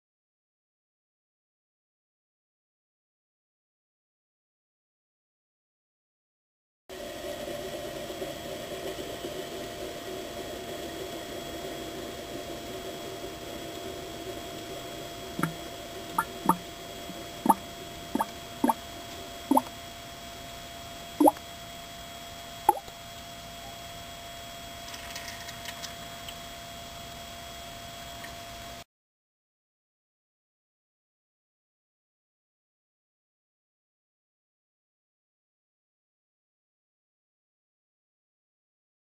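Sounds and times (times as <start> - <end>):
centrifuge humming: 12.0 - 19.7.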